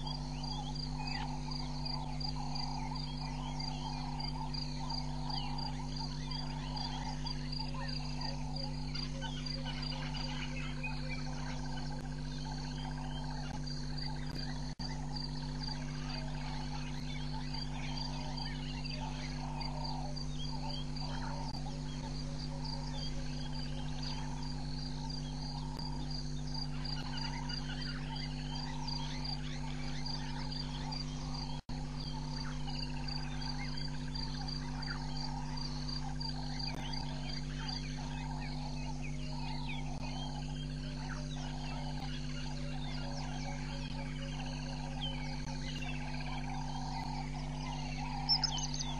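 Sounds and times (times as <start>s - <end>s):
birds chirping: 0.0s - 48.9s
frogs calling: 0.0s - 48.9s
insects: 0.0s - 48.9s
steady low hum: 0.0s - 48.9s.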